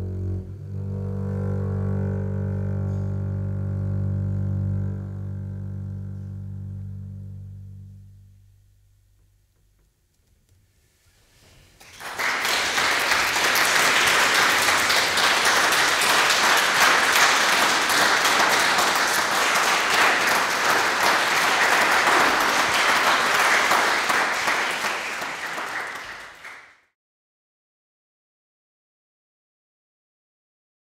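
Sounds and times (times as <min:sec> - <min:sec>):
audience applauding: 0:11.8 - 0:26.8.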